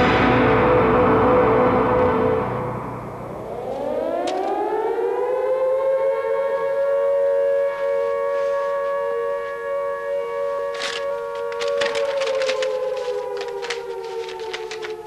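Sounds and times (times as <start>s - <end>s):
air-raid siren wailing: 3.4s - 15.0s.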